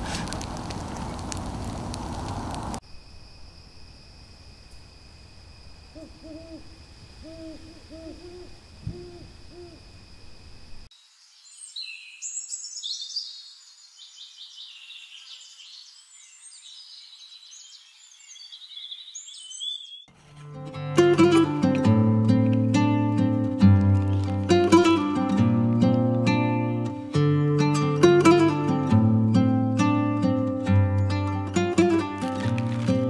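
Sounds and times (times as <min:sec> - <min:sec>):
campfire crackling: 0:00.0 - 0:02.8, 0:21.2 - 0:29.0, 0:29.8 - 0:33.0
owl hooting: 0:05.9 - 0:10.0
songbirds chirping and singing: 0:11.4 - 0:20.1.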